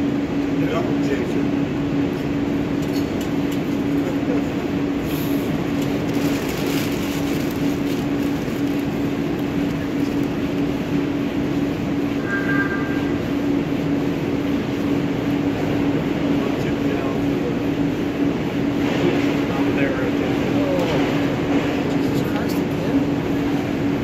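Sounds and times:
machinery drone: 0:00.0 - 0:24.0
low hum: 0:06.2 - 0:15.6
faint high tone: 0:12.2 - 0:13.4.

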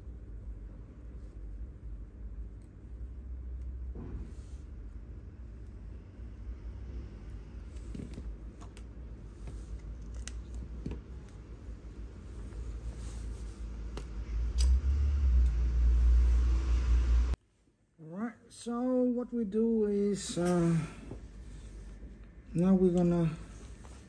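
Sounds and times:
low rumble: 0:11.0 - 0:17.4.

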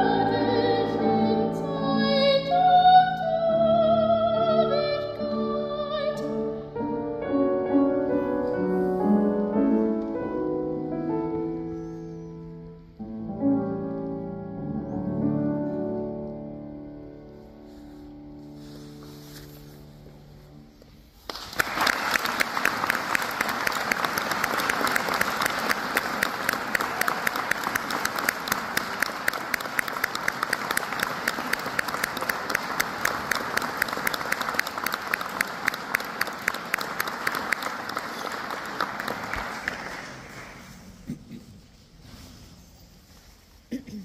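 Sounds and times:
audience applauding: 0:21.2 - 0:40.9.

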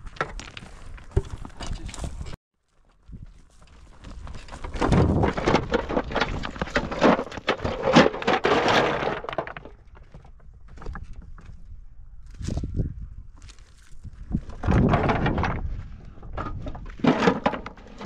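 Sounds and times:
clatter of sharp knocks and cracks: 0:04.4 - 0:11.2, 0:16.3 - 0:18.0.

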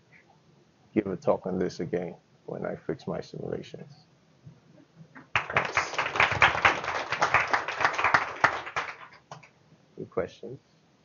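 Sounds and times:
audience applauding: 0:05.3 - 0:09.5.

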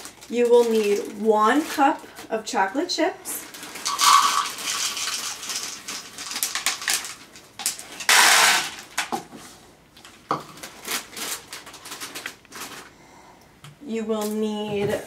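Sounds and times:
plastic bag crinkling: 0:00.0 - 0:09.1, 0:10.0 - 0:12.9
chocolate chips clattering into bowl: 0:03.7 - 0:09.1.

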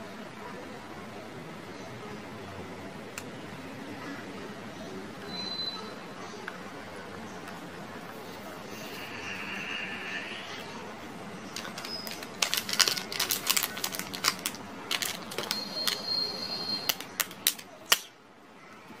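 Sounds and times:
plastic wrappers crinkling: 0:11.4 - 0:18.1.

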